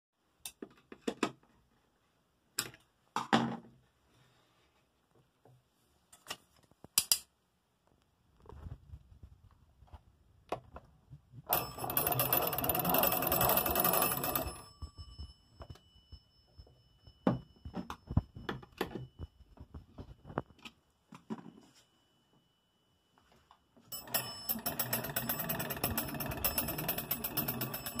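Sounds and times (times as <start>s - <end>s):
telephone bells ringing: 11.5s - 19.1s, 23.9s - 28.0s.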